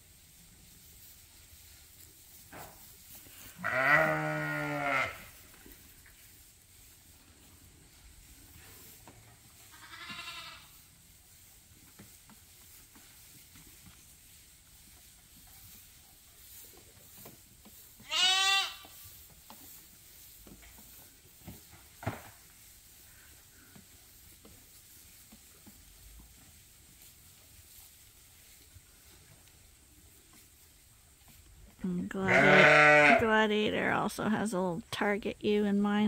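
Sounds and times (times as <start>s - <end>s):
sheep bleating: 3.6s - 5.3s, 9.7s - 10.7s, 18.1s - 18.8s, 32.2s - 33.2s.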